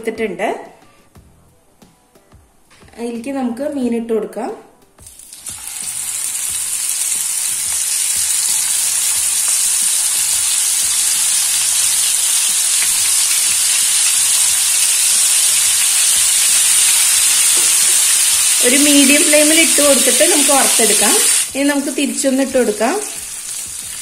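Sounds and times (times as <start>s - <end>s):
fish sizzling in hot oil: 5.0s - 24.0s.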